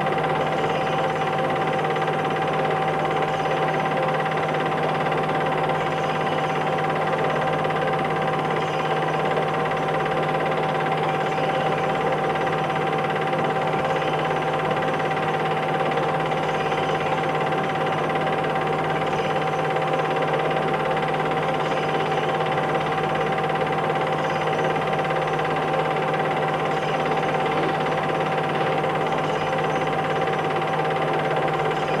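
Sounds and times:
constant high-pitched tone: 0.0s - 32.0s
film projector whirring: 0.0s - 32.0s.

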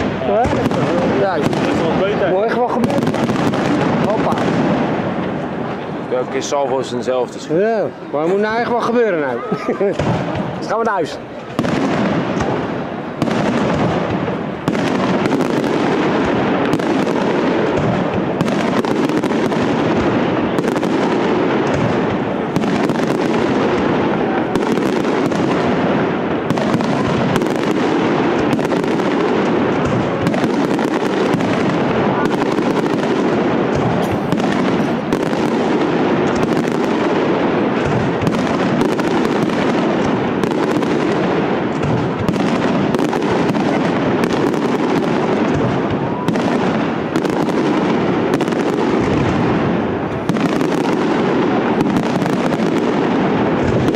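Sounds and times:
crackling fireworks: 0.0s - 53.9s
firework shell bursts: 33.7s - 35.1s.

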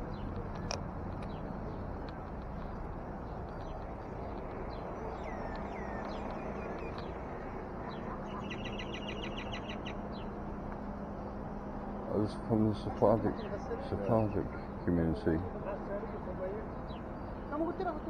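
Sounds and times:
small birds chirping: 0.0s - 18.0s
bird trill: 4.7s - 10.4s.

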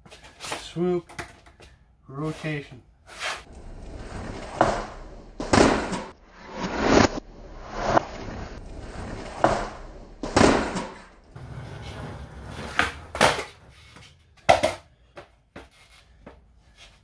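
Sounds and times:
skateboard wheels rolling: 3.1s - 6.2s, 8.6s - 14.8s
skateboard clacking and landing: 4.3s - 6.2s, 8.6s - 15.7s.

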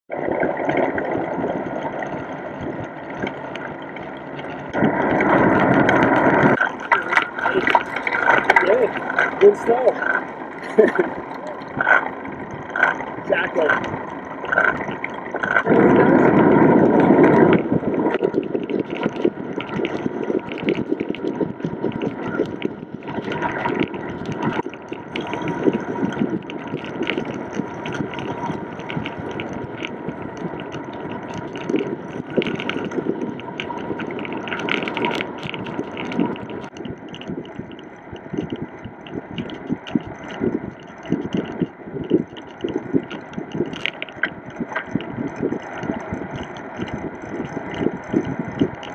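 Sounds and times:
bicycle tyre noise: 0.1s - 48.9s
wind rumbling on microphone: 0.1s - 48.9s.

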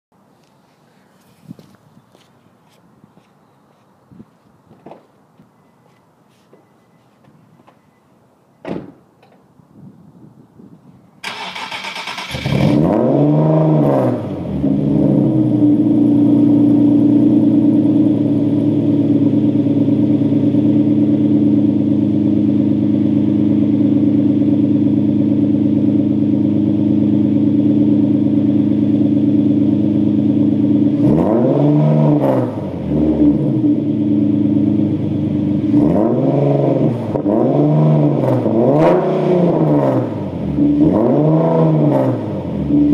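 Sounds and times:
engine revs blipped: 11.2s - 21.2s, 26.3s - 42.9s
car engine starting and idling: 11.2s - 42.9s.

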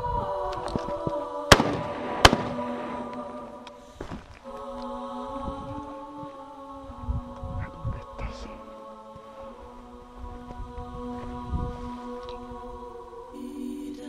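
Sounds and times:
choir-like background music: 0.0s - 14.0s
shotgun shots echoing: 1.5s - 3.6s.

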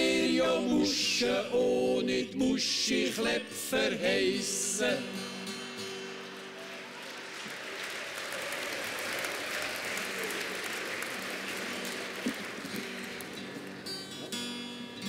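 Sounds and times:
acoustic guitar chord ringing: 5.0s - 6.4s, 12.8s - 15.0s
audience applauding: 6.2s - 14.2s.

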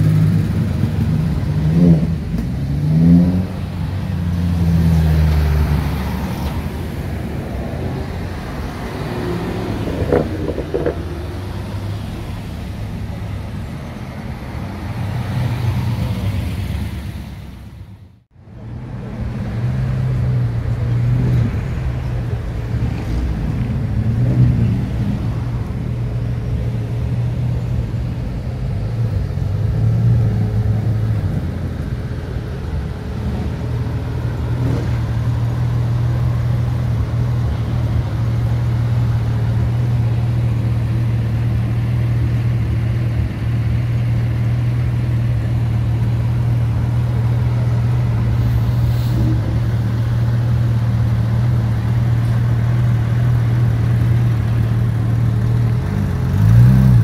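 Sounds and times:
car engine idling: 31.4s - 56.6s.

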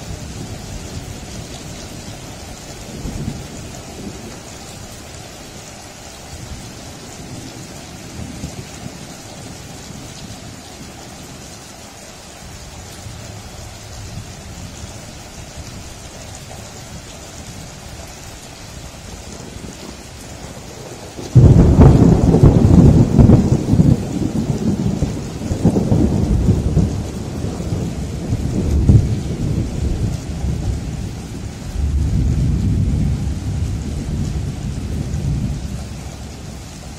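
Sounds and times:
steady rain: 0.0s - 36.9s
low thunder rumbling: 18.9s - 36.9s
loud thunderclap: 21.2s - 35.9s.

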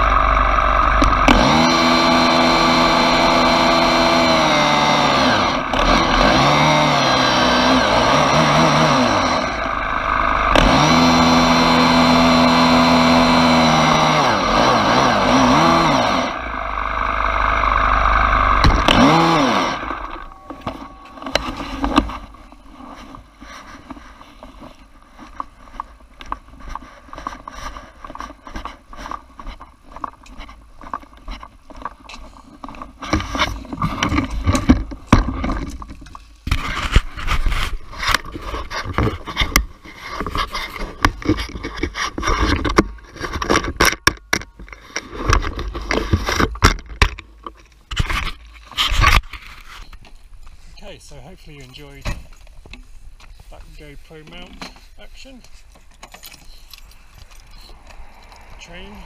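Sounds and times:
leaf blower engine running: 0.0s - 24.1s
handling clicks and knocks: 38.1s - 48.4s, 54.2s - 58.9s.

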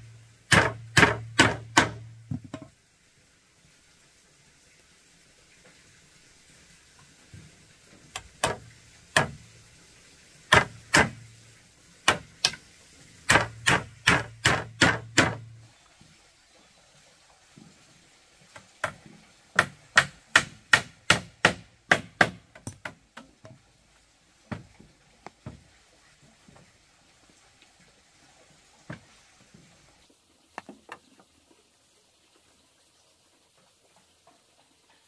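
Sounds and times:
tool striking wood: 0.5s - 2.7s, 8.2s - 9.4s, 10.5s - 11.2s, 12.1s - 12.6s, 13.3s - 15.5s, 19.6s - 23.0s.

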